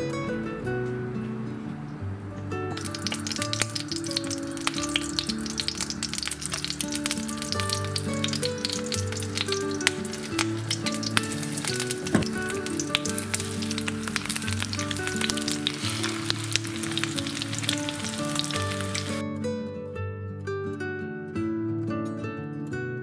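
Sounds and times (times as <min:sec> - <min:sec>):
soft background music: 0:00.0 - 0:23.0
slices sizzling in hot oil: 0:02.8 - 0:19.2.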